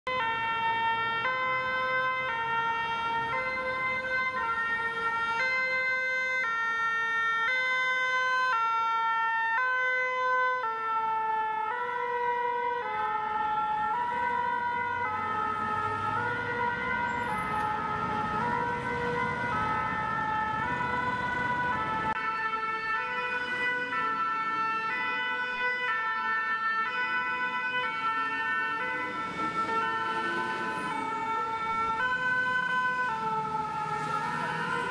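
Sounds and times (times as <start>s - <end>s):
two-tone fire engine sirens: 0.0s - 34.9s
engine and traffic rumble: 0.1s - 34.9s.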